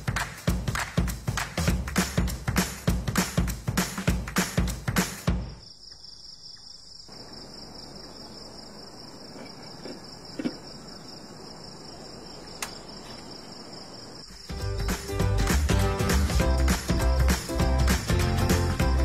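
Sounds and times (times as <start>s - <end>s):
background music: 0.0s - 5.5s, 14.5s - 19.0s
crickets trilling: 5.3s - 15.4s.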